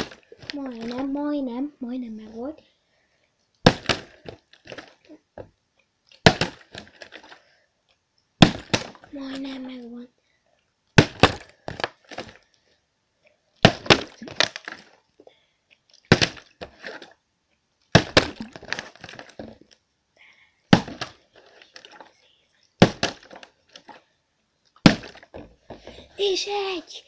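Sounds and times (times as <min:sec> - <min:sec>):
plastic bottle clattering and bouncing: 0:00.0 - 0:01.2, 0:13.6 - 0:15.0, 0:17.9 - 0:19.7, 0:20.7 - 0:22.1, 0:22.8 - 0:24.0, 0:24.8 - 0:26.1.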